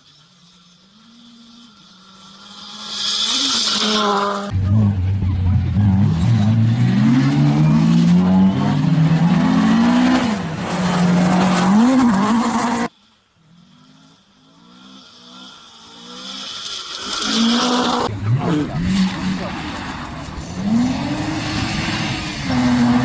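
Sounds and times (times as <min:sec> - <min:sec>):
distant rally car engine: 0:00.0 - 0:23.0
rally car engine revving: 0:00.0 - 0:23.0.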